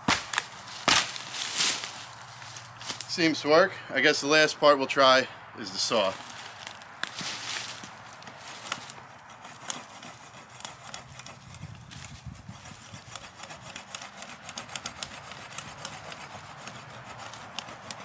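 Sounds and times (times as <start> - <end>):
saw scraping into wood: 5.9 - 18.0.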